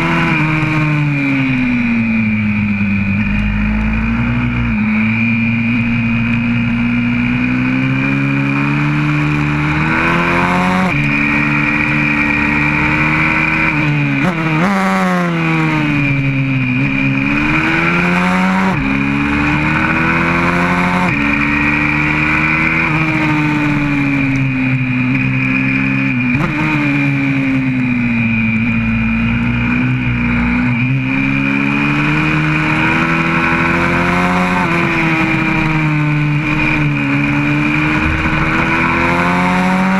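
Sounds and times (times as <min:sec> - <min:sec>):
pit bike engine revving: 0:00.0 - 0:39.9.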